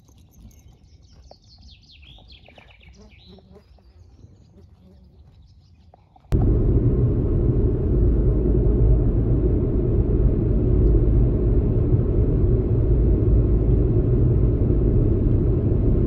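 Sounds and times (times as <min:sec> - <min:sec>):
road and engine rumble: 0:06.2 - 0:16.0.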